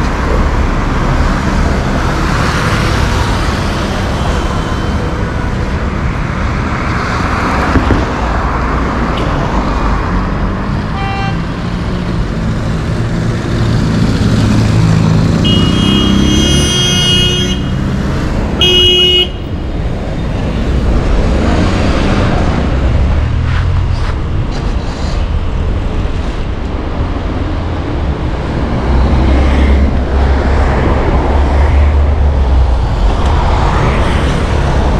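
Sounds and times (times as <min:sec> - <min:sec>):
traffic rumble: 0:00.0 - 0:34.9
car horns honking: 0:10.9 - 0:11.5, 0:15.4 - 0:19.6.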